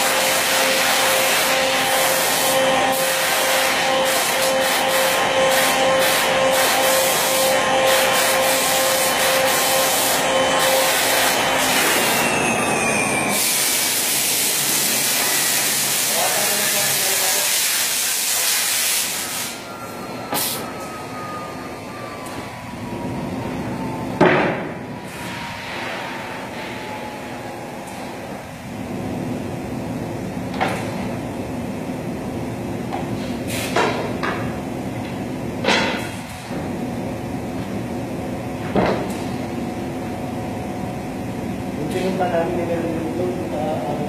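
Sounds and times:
router spindle whine winding down: 9.4 - 15.8.

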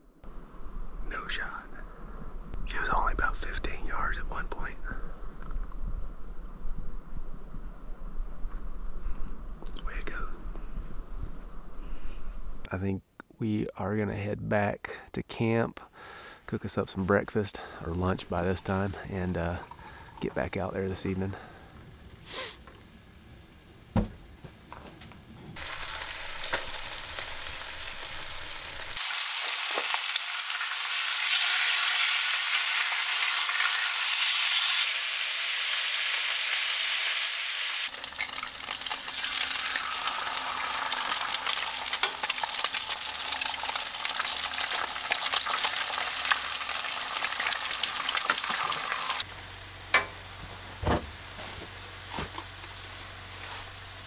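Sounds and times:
eggs frying: 18.2 - 20.6, 25.6 - 36.6, 37.6 - 49.3
bacon sizzling in a skillet: 25.6 - 49.3.

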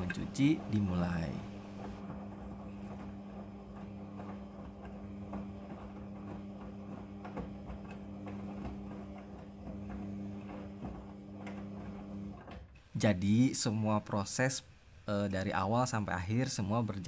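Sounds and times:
washing machine motor hum: 0.0 - 13.3.

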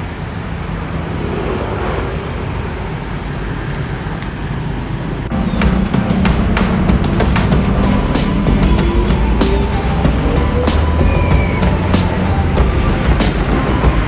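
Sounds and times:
faint high whine: 0.0 - 6.1
road traffic rumble: 0.0 - 14.0
music with strong beat: 5.3 - 14.0.

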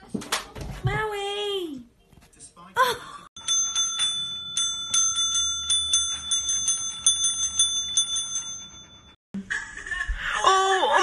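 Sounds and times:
service bell dinging: 3.4 - 9.2.

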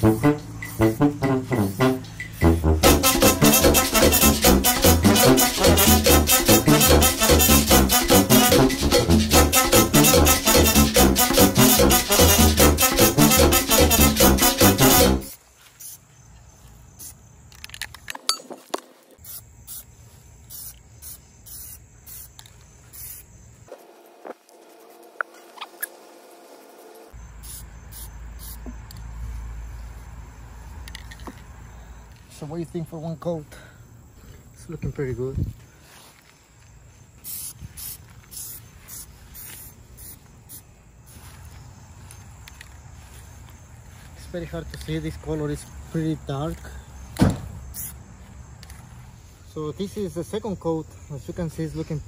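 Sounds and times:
spray paint can hissing: 0.0 - 16.0, 17.0 - 17.7, 19.2 - 19.9, 20.5 - 28.7, 37.2 - 41.2, 47.7 - 48.0.

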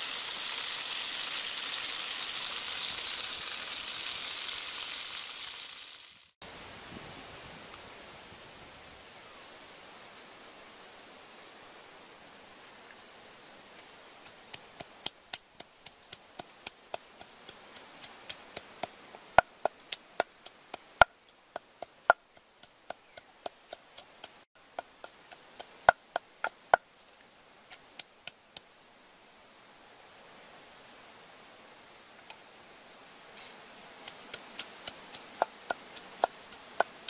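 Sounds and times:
pestle pounding in wooden mortar: 34.3 - 37.0.

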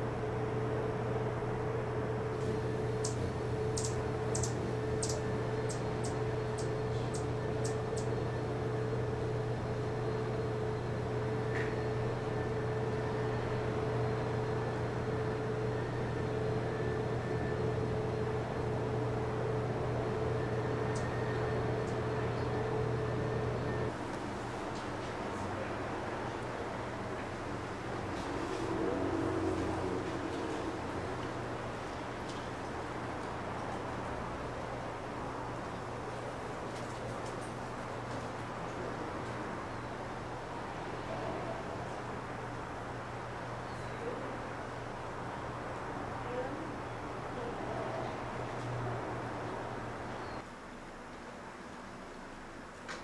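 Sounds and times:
mechanical hum with held tone: 0.0 - 53.0
very high ticks: 3.0 - 8.1.

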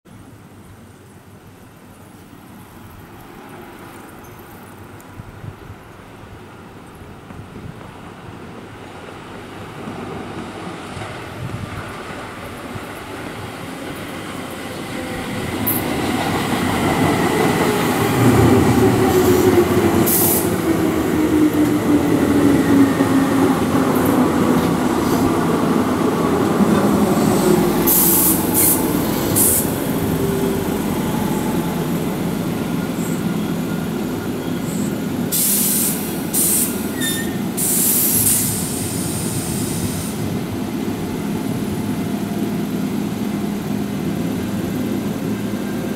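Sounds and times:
electric train braking to a stop: 14.1 - 40.4
train brake squeals: 27.2 - 29.8, 32.8 - 40.2.

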